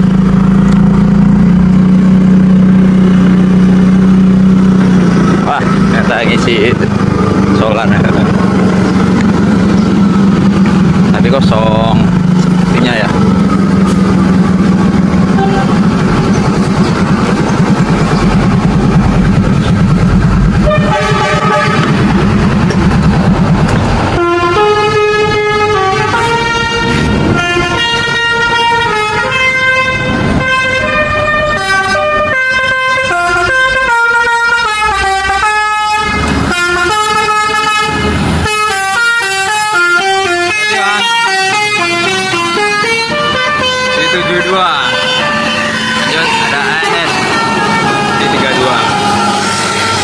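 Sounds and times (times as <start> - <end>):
heavy vehicle engine: 0.0 - 50.0
multi-tone bus horn tune: 12.1 - 17.2, 19.1 - 22.6, 24.0 - 50.0
horn chord: 15.3 - 16.0, 20.4 - 22.6, 24.1 - 50.0.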